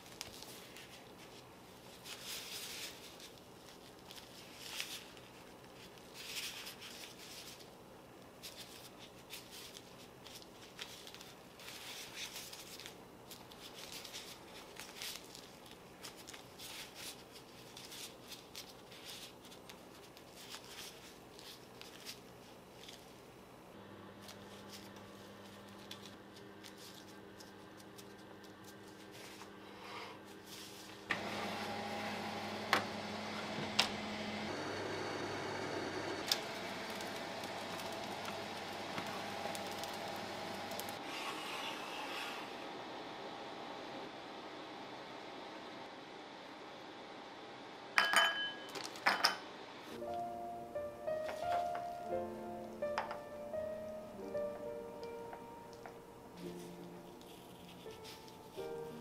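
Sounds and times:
plastic gloves rustling: 0.0 - 41.0, 49.9 - 59.0
oven humming: 23.4 - 27.4, 28.0 - 47.9.

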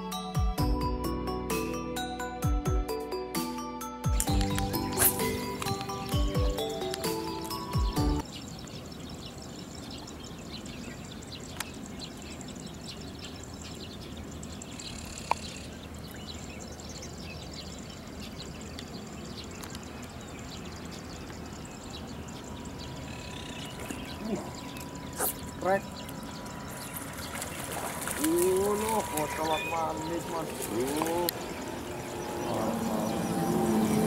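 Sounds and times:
flowing water rushing: 23.7 - 34.0.

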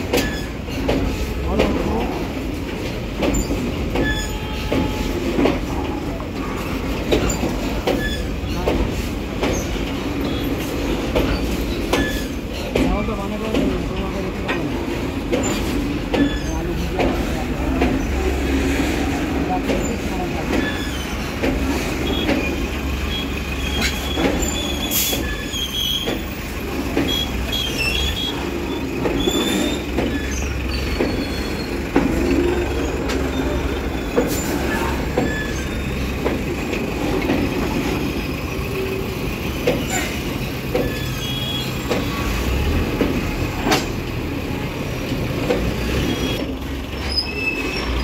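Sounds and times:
wheel squeals: 0.0 - 12.8, 15.3 - 48.0
train wheels rumbling on rails: 0.0 - 48.0
wheels clacking over rail joints: 0.0 - 48.0.

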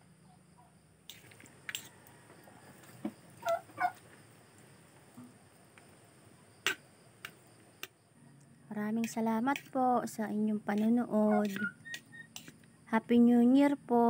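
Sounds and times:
fork clicking against a plate: 9.0 - 9.7, 10.8 - 12.6
short squeaks: 11.4 - 12.6.

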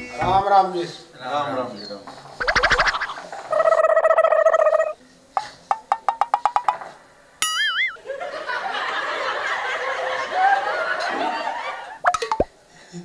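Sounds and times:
wavering tone: 2.4 - 5.0, 7.4 - 8.0
wobbling whistle-like slide: 2.4 - 5.0, 7.5 - 8.0
laugh track: 7.7 - 12.1.

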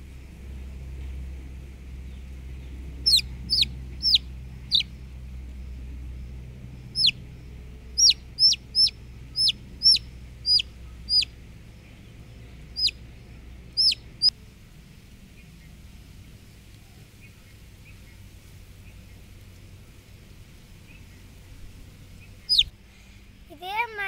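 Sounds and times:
chick peeping: 3.0 - 4.9, 6.9 - 7.2, 8.0 - 11.4, 12.7 - 13.1, 13.7 - 14.3, 22.3 - 22.7.

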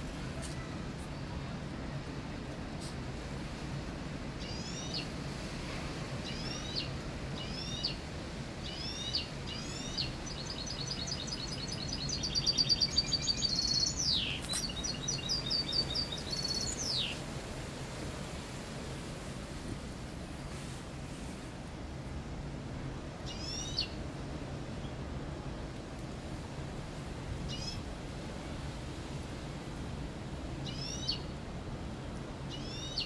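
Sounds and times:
bird singing chirps and trills: 8.7 - 17.2, 30.6 - 31.3, 32.5 - 33.0.

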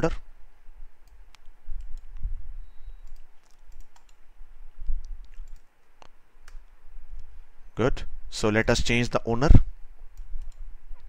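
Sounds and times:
mouse and keyboard clicks: 3.0 - 4.2, 5.0 - 6.7.

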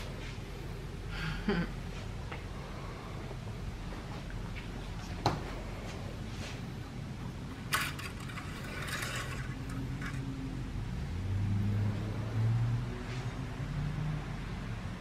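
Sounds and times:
low steady hum: 0.0 - 15.0
metal dipstick scraping: 7.7 - 10.3.

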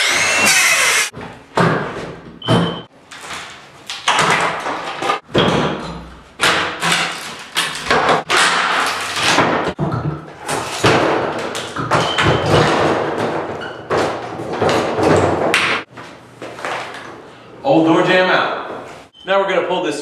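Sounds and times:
circular saw cutting wood: 0.0 - 1.1
thuds and cracks of wood: 3.2 - 15.9.

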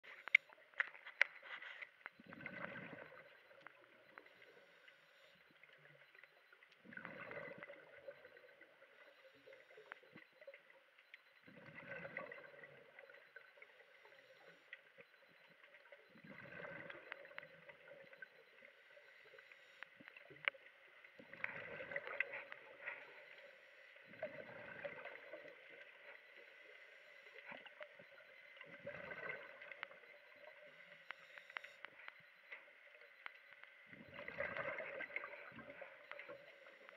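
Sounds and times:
exhaled breath bubbling underwater: 2.2 - 3.3, 6.9 - 8.3, 16.2 - 17.4, 28.7 - 29.7.

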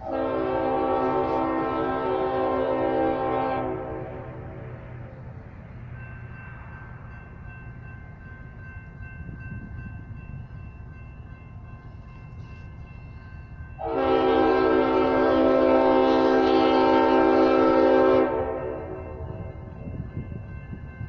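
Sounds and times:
locomotive air horn blast: 0.0 - 5.1, 13.8 - 19.2.

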